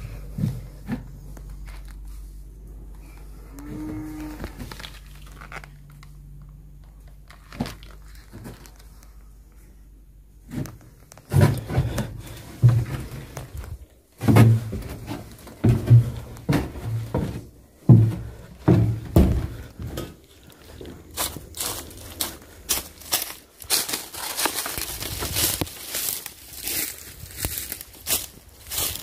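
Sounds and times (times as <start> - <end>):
footsteps on wooden floorboards: 11.3 - 24.4.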